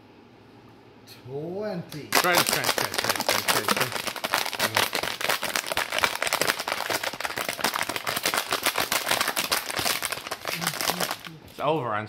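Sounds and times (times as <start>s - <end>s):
person crunching candy: 2.0s - 11.4s.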